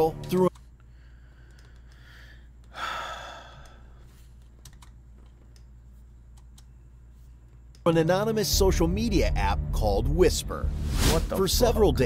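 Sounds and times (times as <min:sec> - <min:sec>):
man sighing: 0:02.0 - 0:04.0.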